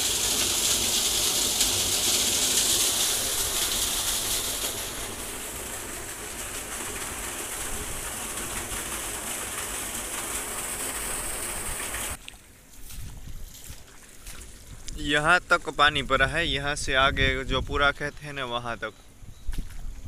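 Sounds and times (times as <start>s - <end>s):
water gushing into a well: 0.0s - 12.2s.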